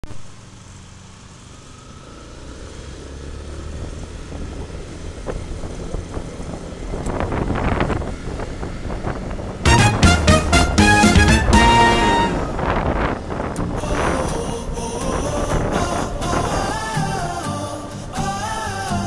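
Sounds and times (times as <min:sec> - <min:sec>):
wind rushing over microphone: 0:03.6 - 0:09.7, 0:11.6 - 0:17.4.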